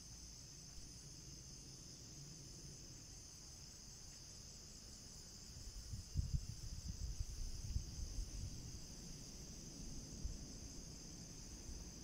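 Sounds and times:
insects chorus: 0.0s - 12.0s
wind gusts buffeting microphone: 5.8s - 9.0s.

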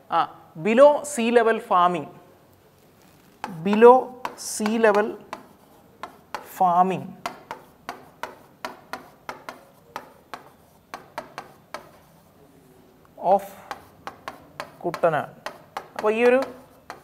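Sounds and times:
marker pen writing on board: 3.2s - 12.4s, 13.6s - 17.0s.

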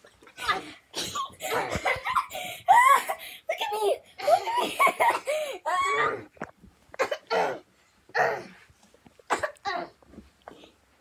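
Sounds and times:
children yelling and laughing: 1.4s - 6.3s.

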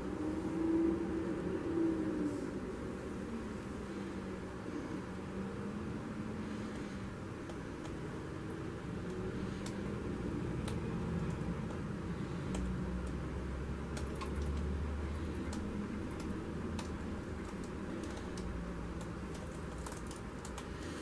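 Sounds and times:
steady low hum: 0.0s - 21.0s
paint dripping on plastic sheet: 6.5s - 21.0s.

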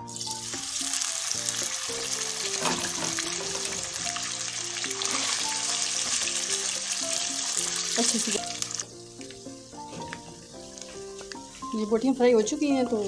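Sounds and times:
meat sizzling in oil: 0.0s - 13.0s.

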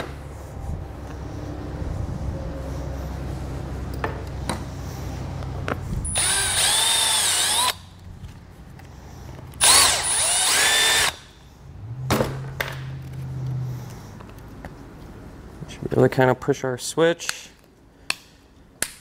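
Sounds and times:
cordless drill boring plastic: 6.1s - 7.9s, 9.6s - 11.2s.

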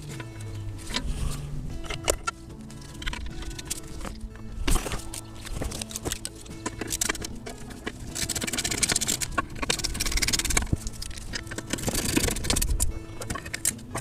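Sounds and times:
wrench clicking and scraping metal: 0.0s - 14.0s.

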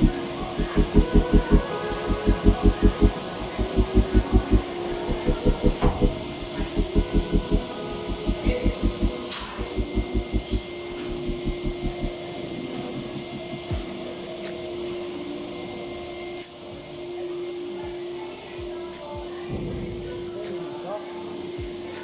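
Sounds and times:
throbbing pulsing bass: 0.0s - 12.2s
held synth note: 0.0s - 13.8s.

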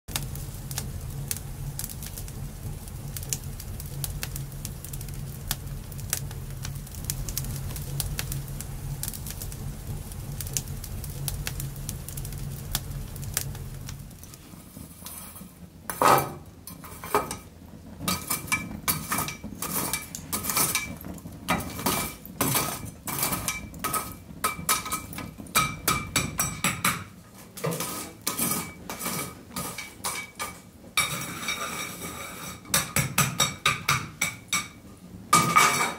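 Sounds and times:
wood fire crackling: 0.0s - 35.9s.

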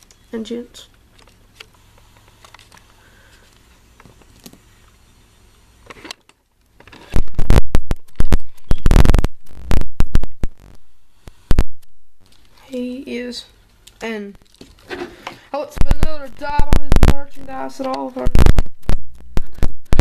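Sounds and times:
camera microphone handling noise: 6.8s - 12.5s.

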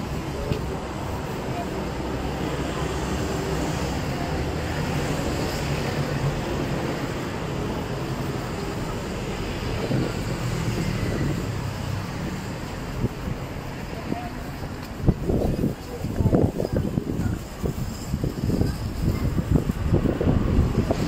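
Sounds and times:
vehicle engines humming: 0.0s - 21.0s.

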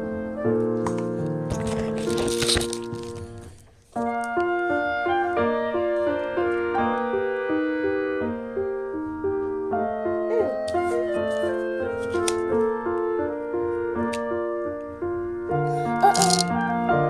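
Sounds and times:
piano melody: 0.0s - 17.0s.

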